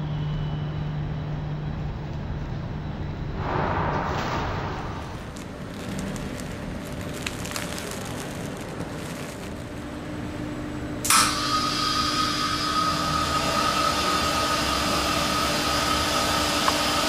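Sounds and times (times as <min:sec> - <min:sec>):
steady whistle: 0:00.0 - 0:01.1
air rushing with loud hiss: 0:03.4 - 0:05.4.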